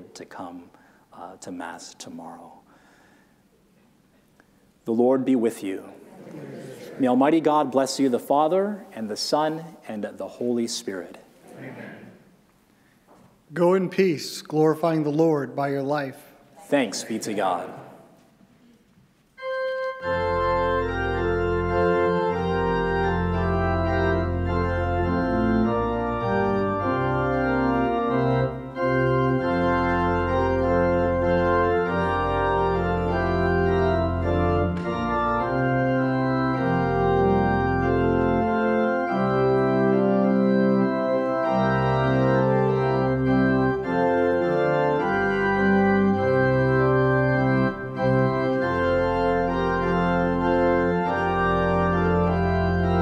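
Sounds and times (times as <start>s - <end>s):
organ playing hymn chords: 0.0s - 3.3s, 4.7s - 11.2s, 13.4s - 17.9s, 19.3s - 53.0s.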